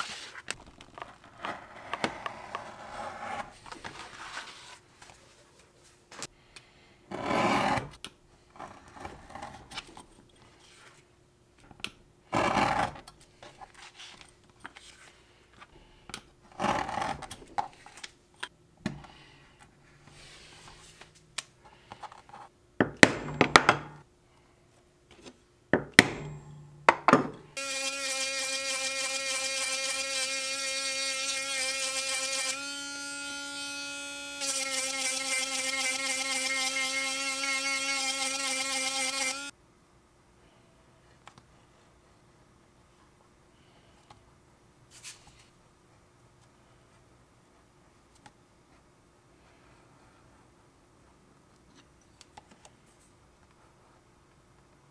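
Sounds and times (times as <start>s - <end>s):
rotary tool whirring: 27.6s - 39.5s.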